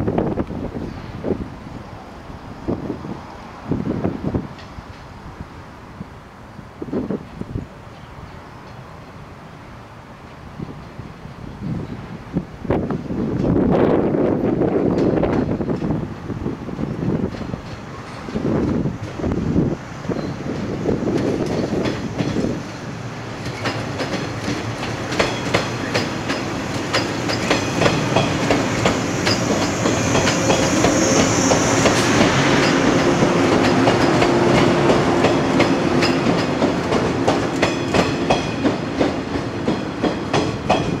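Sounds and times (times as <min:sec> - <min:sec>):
train wheels clicking over rail joints: 0:14.6 - 0:41.0
train motor hum: 0:14.7 - 0:41.0.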